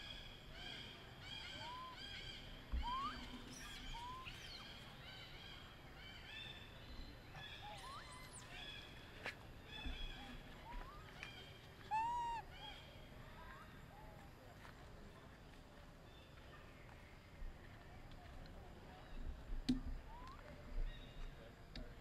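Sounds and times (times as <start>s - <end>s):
small animals chirping: 1.3s - 4.9s, 7.5s - 8.8s, 10.2s - 12.5s
short rising whistled notes: 2.8s - 4.3s.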